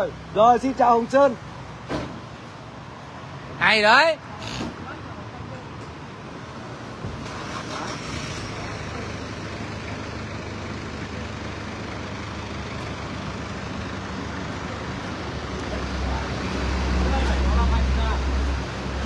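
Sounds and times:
street traffic: 0:00.0 - 0:19.0
vehicle engine running: 0:07.7 - 0:19.0.

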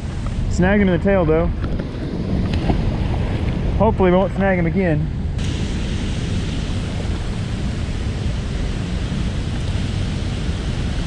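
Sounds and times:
water rushing through spillway: 0:05.4 - 0:11.0.

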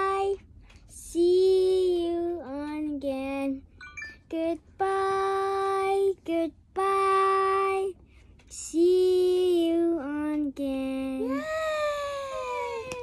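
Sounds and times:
child singing: 0:00.0 - 0:00.4, 0:04.3 - 0:08.0.

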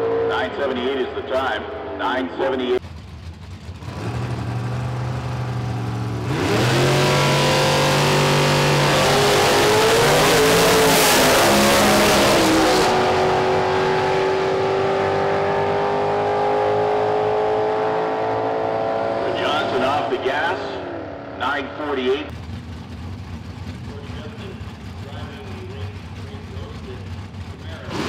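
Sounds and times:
drag car engines accelerating: 0:00.0 - 0:28.0.

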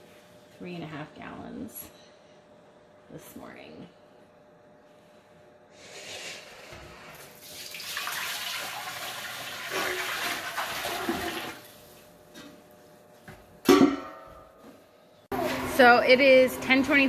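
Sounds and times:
liquid splashing into a pot: 0:07.3 - 0:11.6.

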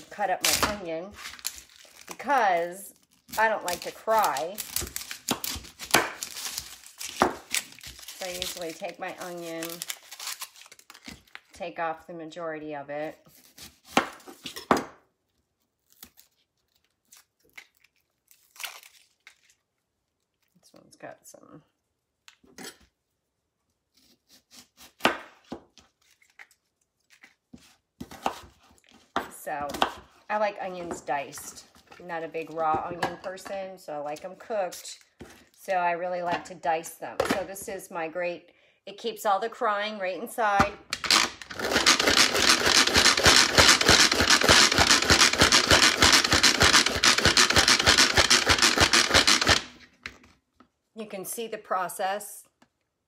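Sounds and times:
dry onion skin crackling: 0:00.4 - 0:11.6, 0:15.5 - 0:20.5
manual food processor chopping: 0:03.4 - 0:10.0, 0:40.9 - 0:49.8
knife cutting onion on mat: 0:13.2 - 0:14.8, 0:27.5 - 0:30.1.

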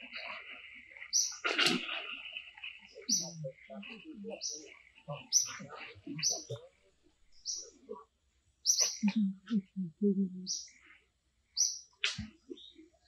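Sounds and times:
birds chirping: 0:00.0 - 0:08.0, 0:08.6 - 0:11.0, 0:11.6 - 0:13.0
low pulsed vocal sounds: 0:08.9 - 0:10.7.

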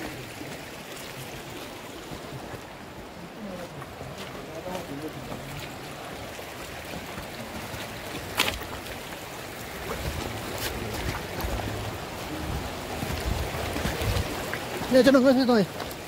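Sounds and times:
mountain stream rushing: 0:00.0 - 0:16.0
footsteps on loose stones: 0:06.6 - 0:11.7
wind on microphone: 0:09.7 - 0:14.6.

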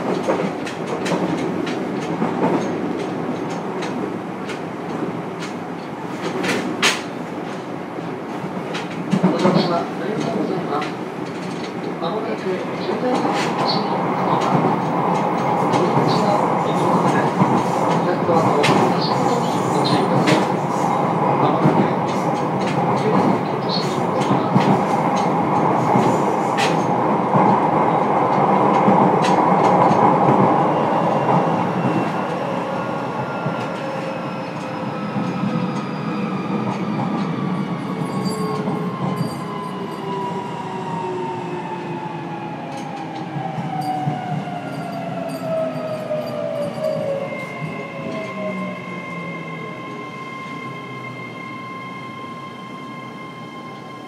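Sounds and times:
rail-joint clicks: 0:00.0 - 0:07.7, 0:08.7 - 0:12.0, 0:12.8 - 0:27.6, 0:28.3 - 0:30.4
train wheel and rail rumble: 0:00.0 - 0:54.0.

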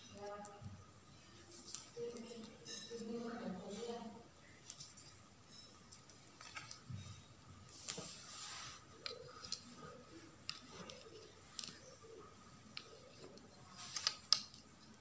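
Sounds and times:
cloth rustling and sliding: 0:07.7 - 0:09.2
light clicks and taps: 0:09.0 - 0:15.0.

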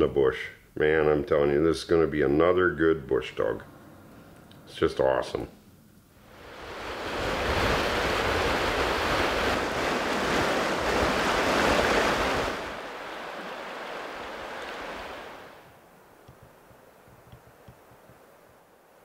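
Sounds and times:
river water rushing over rapids: 0:06.3 - 0:15.6.

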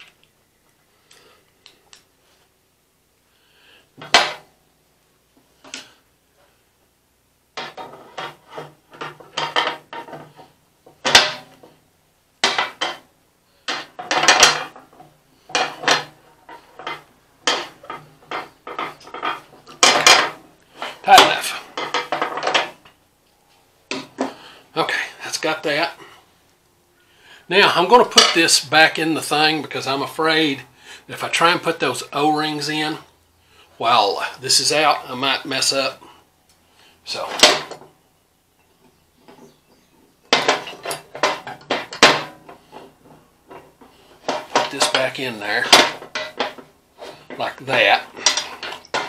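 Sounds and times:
pliers clinking and scraping on metal: 0:40.3 - 0:49.0.

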